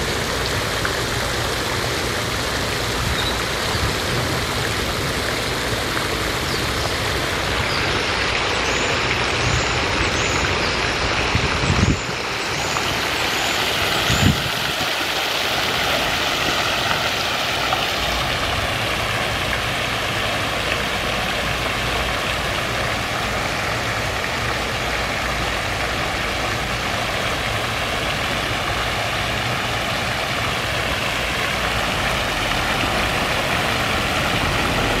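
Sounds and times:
fountain spray splashing: 0.0 - 35.0
road traffic: 0.0 - 35.0.

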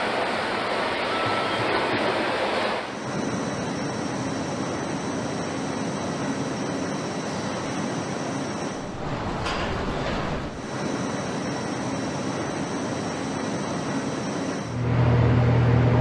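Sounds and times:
factory machinery whirring: 0.0 - 16.0
faint high whine: 0.0 - 16.0.

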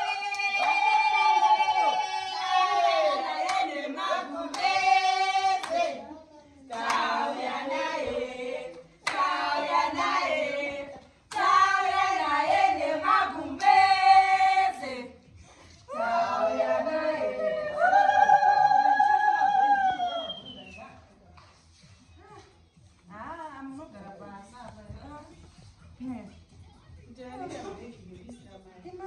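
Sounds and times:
women singing together: 0.0 - 20.8
hand claps: 3.4 - 3.7, 4.5 - 4.8, 5.5 - 6.0, 6.7 - 7.1, 8.7 - 9.4, 11.3 - 11.6.

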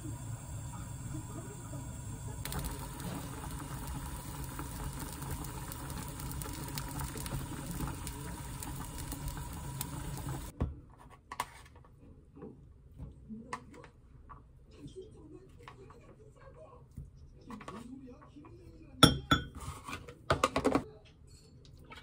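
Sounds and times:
water boiling in a pot: 0.0 - 10.5.

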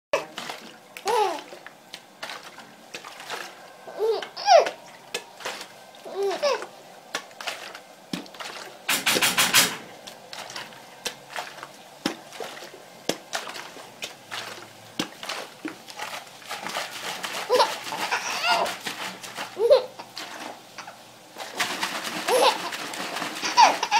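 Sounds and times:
plastic water bottle crackling: 0.2 - 23.9
baby cooing: 1.0 - 1.6, 3.9 - 4.8, 6.0 - 6.7, 17.5 - 18.8, 19.6 - 20.2, 22.3 - 22.8, 23.4 - 23.9
baby laughing: 1.0 - 1.6, 3.9 - 4.8, 6.0 - 6.7, 17.3 - 18.8, 19.5 - 20.2, 22.2 - 23.9.

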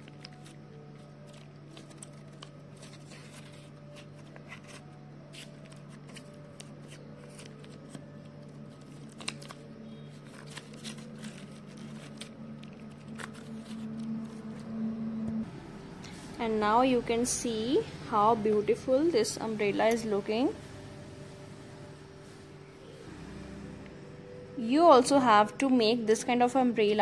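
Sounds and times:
paper rustling and crinkling: 0.0 - 14.7
steady low hum: 0.0 - 26.2.

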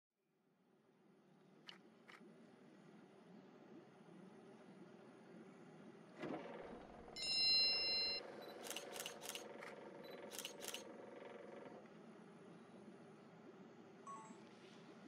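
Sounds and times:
electronic chime: 7.2 - 8.2, 14.1 - 14.4
sharp clicks: 8.6 - 10.9.

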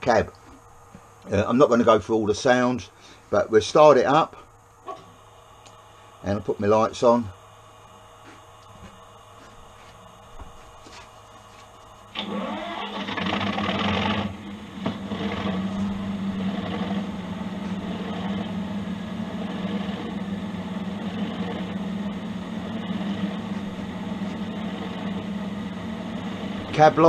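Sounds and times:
low hum: 4.4 - 27.0
diesel engine starting and idling: 12.1 - 27.0.

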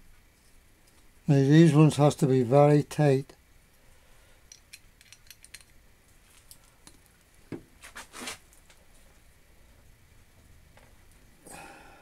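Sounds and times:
metallic clicks and clinks: 4.5 - 5.8
short scrape: 7.8 - 8.4.

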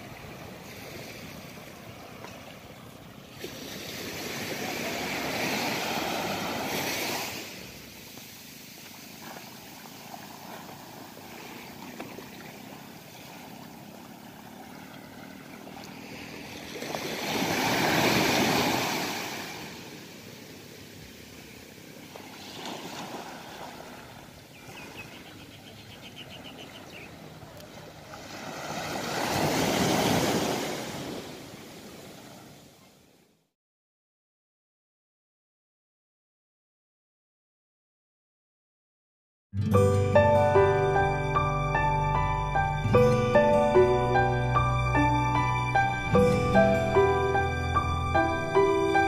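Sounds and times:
small waves washing on beach: 0.0 - 33.2
surf hiss: 3.3 - 25.5, 40.2 - 49.0.

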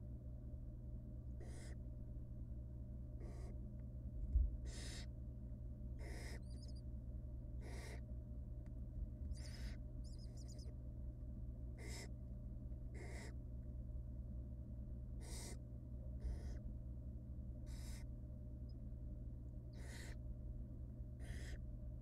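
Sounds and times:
steady low hum: 0.0 - 22.0
owl nestlings hissing begging calls: 1.4 - 1.8, 3.2 - 3.6, 4.6 - 5.1, 6.0 - 6.8, 7.6 - 8.0, 9.3 - 10.7, 11.8 - 12.1, 13.0 - 13.4, 15.2 - 15.6, 16.2 - 16.6, 17.6 - 18.1, 19.7 - 20.2, 21.2 - 21.6.

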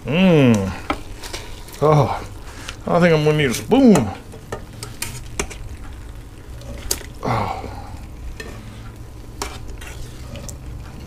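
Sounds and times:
tongs squelching through meat: 0.6 - 11.0
metal tongs clicking on pot: 3.9 - 6.0.

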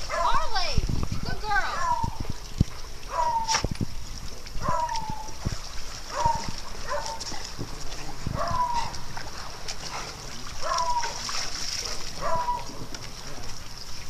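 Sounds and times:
dog whining: 3.1 - 3.6, 8.4 - 9.0, 12.2 - 12.7
clicks and knocks of dogs moving: 4.7 - 13.6.

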